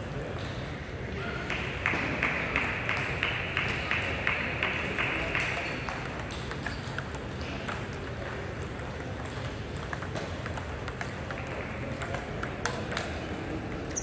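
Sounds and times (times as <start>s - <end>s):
table tennis balls clicking: 4.7s - 14.0s.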